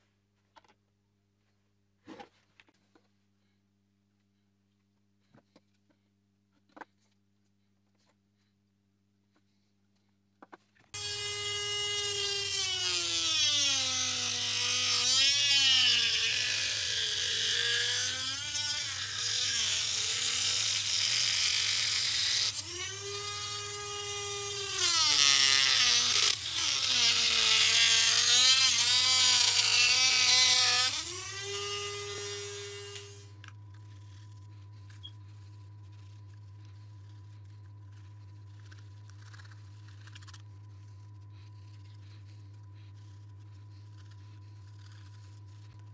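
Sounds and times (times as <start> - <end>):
rotary tool whining: 11.0 - 45.9.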